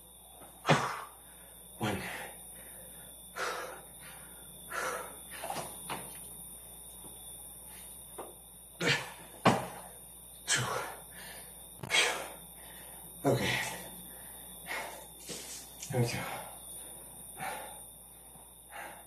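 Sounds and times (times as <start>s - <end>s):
person breathing hard: 0.7s - 5.5s, 10.5s - 15.6s, 16.2s - 18.0s, 18.6s - 19.0s
thumps on the floor: 9.4s - 9.8s.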